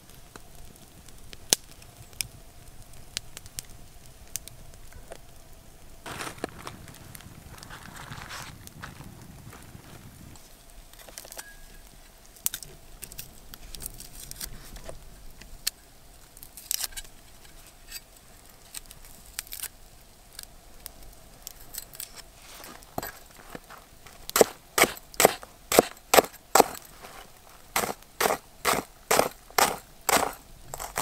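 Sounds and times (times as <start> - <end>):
knife chopping on wood: 24.3 - 26.8, 27.8 - 31.0
knife cutting onion: 24.3 - 26.8, 27.8 - 31.0.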